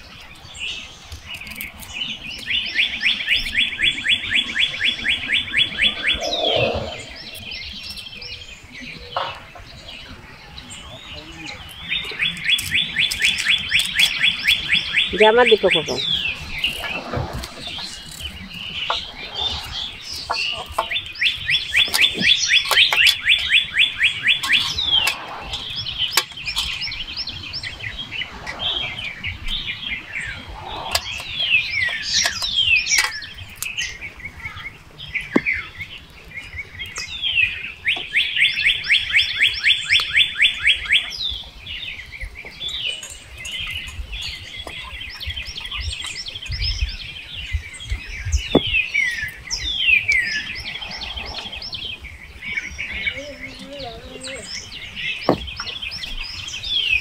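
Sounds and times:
birds chirping and calling: 0:00.0 - 0:57.0.

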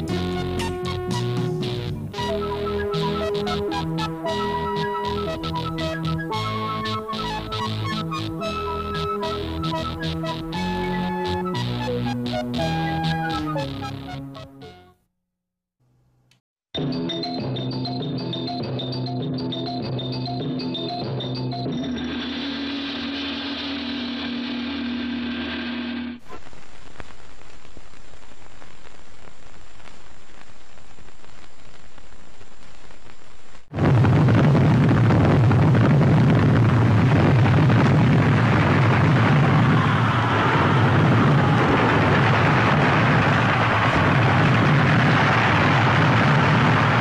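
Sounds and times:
explosion-like roar: 0:21.9 - 0:26.2, 0:33.7 - 0:47.0
steady hiss: 0:22.3 - 0:33.7.

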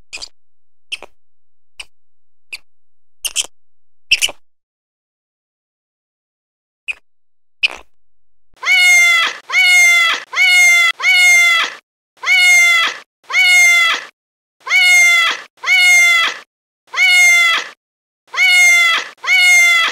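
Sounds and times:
cat meowing: 0:08.6 - 0:14.1, 0:14.7 - 0:16.4, 0:18.4 - 0:19.9.

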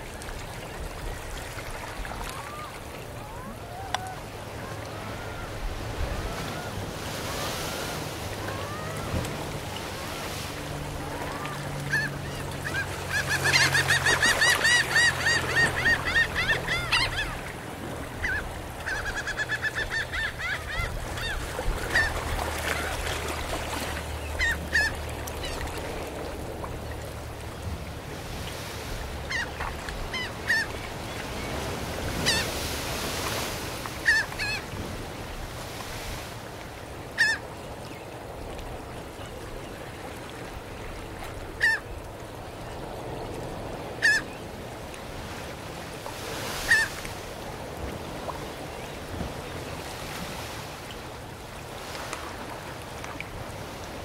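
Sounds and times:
gentle surf on sand: 0:00.0 - 0:19.0, 0:20.6 - 0:54.0
gulls calling: 0:01.8 - 0:27.4, 0:28.6 - 0:34.9, 0:37.1 - 0:38.3, 0:39.1 - 0:44.6, 0:46.2 - 0:50.6.

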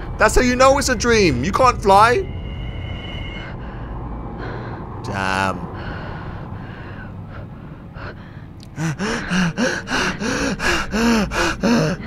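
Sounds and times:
low hum: 0:00.0 - 0:12.0
person gasping: 0:08.0 - 0:12.0.

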